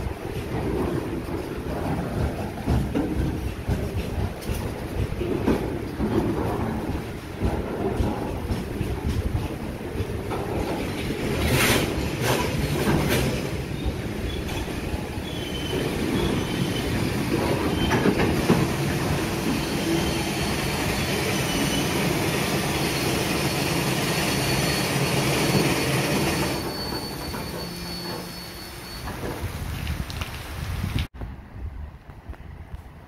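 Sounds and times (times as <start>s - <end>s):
train wheels rumbling on rails: 0.0s - 33.0s
high wheel squeal: 13.7s - 18.2s, 19.2s - 29.6s.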